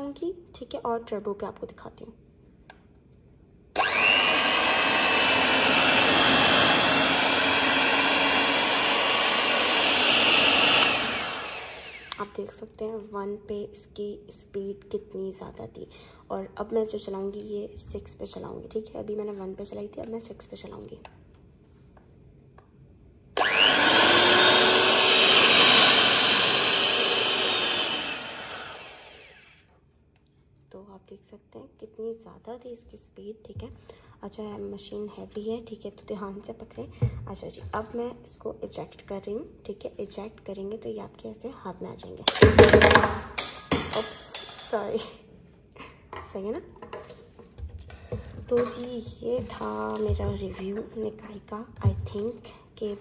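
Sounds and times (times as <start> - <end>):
electric hand mixer whining: 3.8 - 12.4, 23.4 - 29.6.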